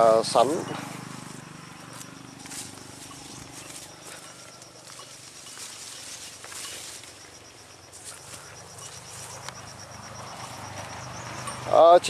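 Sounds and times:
footsteps through leaves and stalks: 0.7s - 9.6s.

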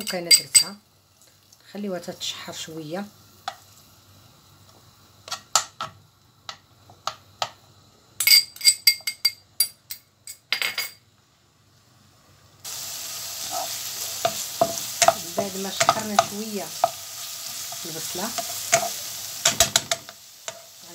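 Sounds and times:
metal spoon clinking on pan: 0.0s - 0.8s, 8.2s - 11.0s, 14.2s - 16.9s, 18.4s - 20.7s
onion sizzling in oil: 0.0s - 8.8s, 11.4s - 20.9s
wooden spatula scraping pan: 13.4s - 16.3s.

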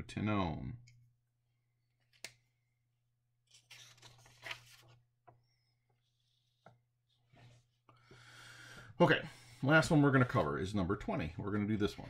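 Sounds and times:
paper rustling: 3.5s - 5.0s.

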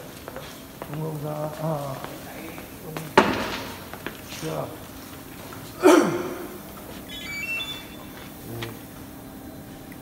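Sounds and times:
faint electronic beeps: 7.1s - 8.3s.

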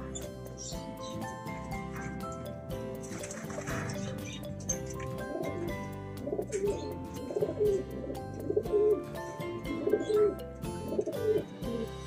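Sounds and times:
background music: 0.0s - 12.0s
pigeon cooing: 3.1s - 9.0s, 9.6s - 12.0s.

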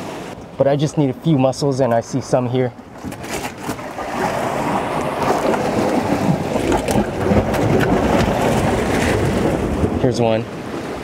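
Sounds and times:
surf washing over rocks: 2.9s - 11.0s
wind on microphone: 2.9s - 11.0s.

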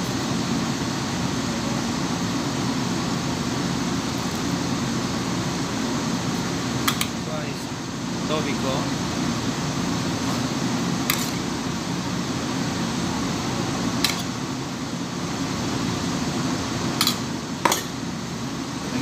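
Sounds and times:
fan hum: 0.0s - 19.0s.

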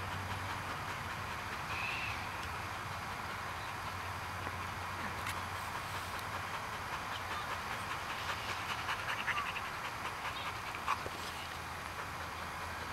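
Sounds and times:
dog panting: 0.0s - 1.7s, 5.6s - 12.9s.

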